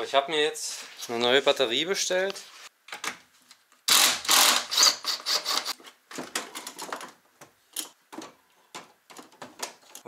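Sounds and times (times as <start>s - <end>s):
tools and parts clattering: 5.4s - 10.0s.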